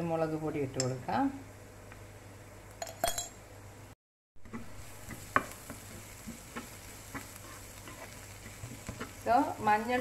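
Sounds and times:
light sizzle: 0.0s - 10.0s
spatula scraping a frying pan: 4.5s - 9.2s.

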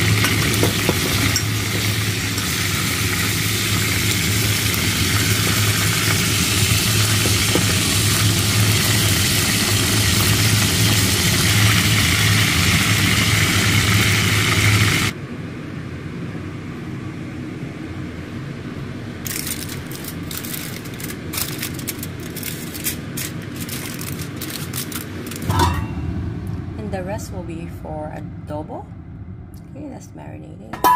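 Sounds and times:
chicken sizzling in hot oil: 0.0s - 15.1s
steady low hum: 0.0s - 30.9s.

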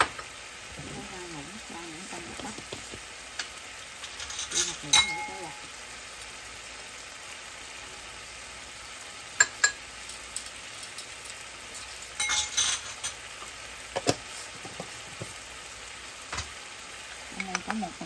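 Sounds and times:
sizzling on stovetop: 0.0s - 18.0s
spoon clinking against dish: 4.2s - 5.4s, 9.4s - 11.0s, 11.8s - 13.2s.

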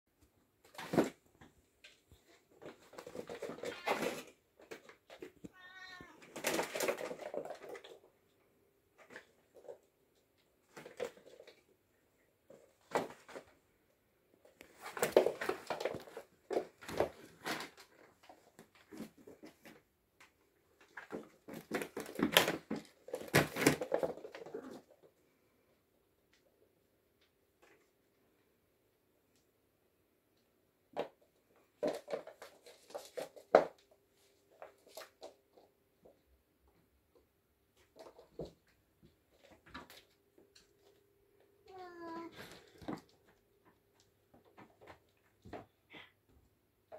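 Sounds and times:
kittens scampering and scuffling: 0.6s - 13.7s, 14.4s - 25.6s, 31.0s - 41.1s.

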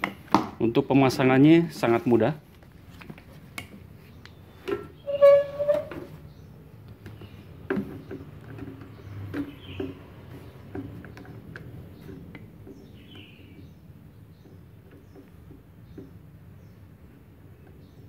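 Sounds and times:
bird chirps: 12.0s - 16.9s.

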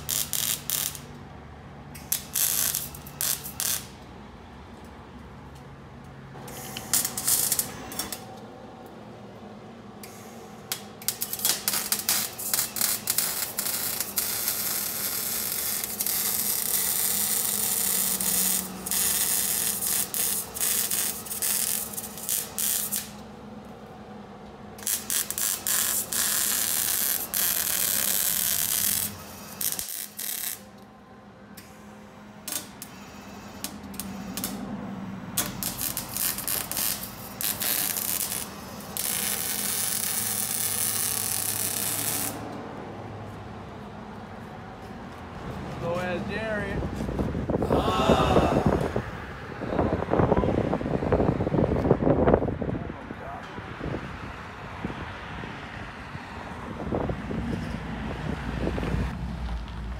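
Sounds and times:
welding arc crackling and hissing: 0.0s - 1.2s, 2.0s - 4.0s, 6.5s - 8.2s, 10.0s - 23.2s, 24.8s - 30.7s, 32.5s - 34.6s, 35.4s - 42.5s.

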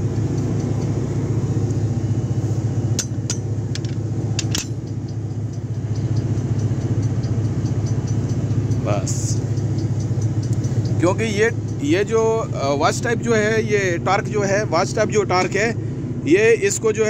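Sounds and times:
engine humming: 0.0s - 17.0s
metallic clicks of torque wrench: 3.0s - 12.0s.

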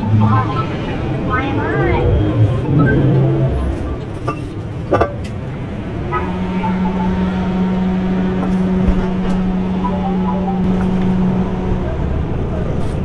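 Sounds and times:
steady motor hum: 0.0s - 13.0s
street traffic: 0.0s - 13.0s.

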